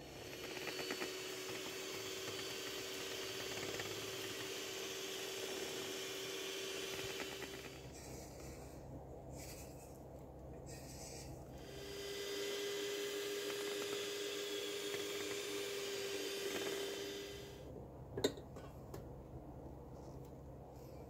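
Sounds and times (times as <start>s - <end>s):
electric hand mixer whine: 0.0s - 8.2s, 11.5s - 17.7s.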